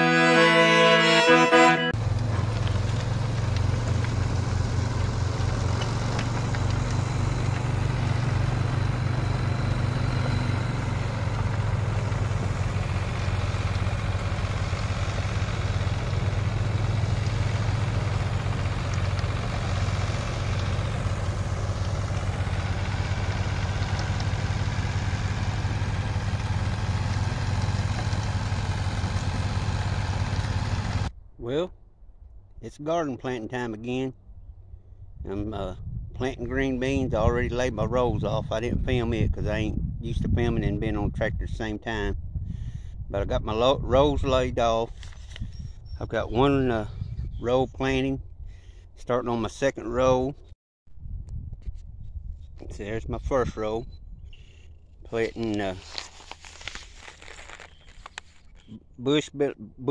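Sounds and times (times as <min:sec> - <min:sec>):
fiddle music: 0:00.0 - 0:02.0
tractor engine running: 0:00.0 - 0:31.2, 0:54.6 - 0:59.3.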